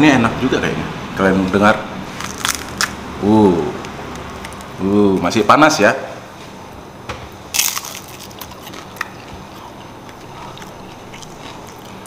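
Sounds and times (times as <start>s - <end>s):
crunch of biting fried food: 2.1s - 3.0s, 7.6s - 12.0s
soft chewing clicks: 3.8s - 4.8s, 8.2s - 12.0s.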